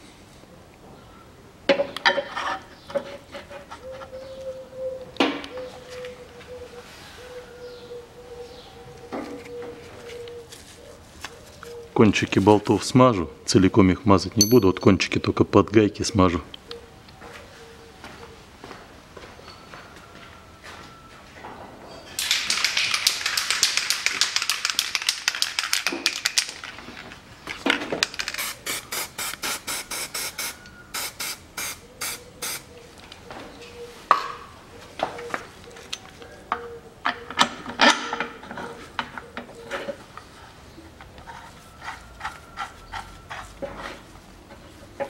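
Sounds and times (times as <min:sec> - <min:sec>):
aerosol spray hissing: 0:28.4 - 0:32.7.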